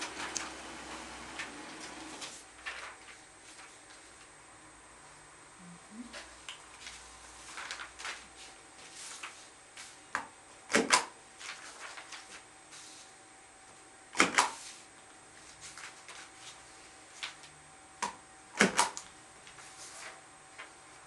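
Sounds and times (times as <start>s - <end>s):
paper sheets rustling: 0.0s - 4.3s, 6.2s - 10.0s, 11.4s - 13.1s, 14.5s - 17.5s, 19.5s - 20.8s.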